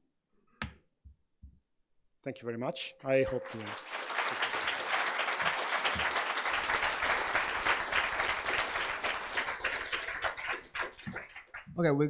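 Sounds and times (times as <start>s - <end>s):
audience applauding: 3.1s - 11.7s.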